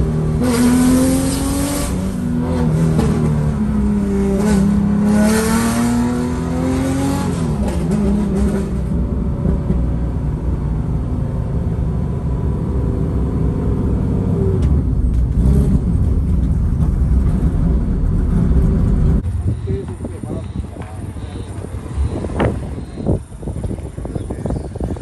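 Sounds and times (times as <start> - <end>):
car engine revving: 0.0 - 9.8
road rumble: 0.0 - 25.0.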